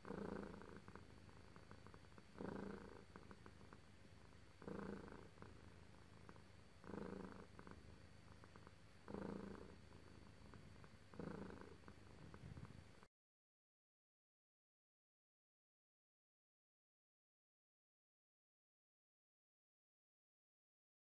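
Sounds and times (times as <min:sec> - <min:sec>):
cat purring: 0:00.0 - 0:13.1.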